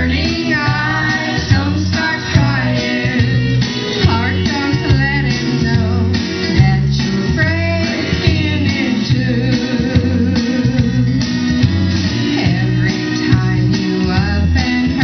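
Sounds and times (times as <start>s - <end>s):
woman singing into microphone: 0.0s - 11.0s, 12.2s - 15.0s
instrumental backing with guitar: 0.0s - 15.0s.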